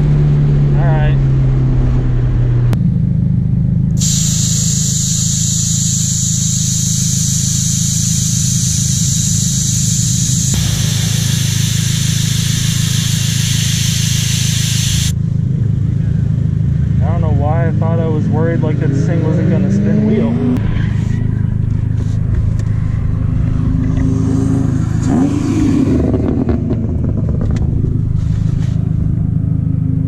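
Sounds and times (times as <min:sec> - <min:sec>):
steady low rumble: 0:03.6 - 0:16.8
air hissing out of tyre valve: 0:04.0 - 0:08.2, 0:10.6 - 0:15.1.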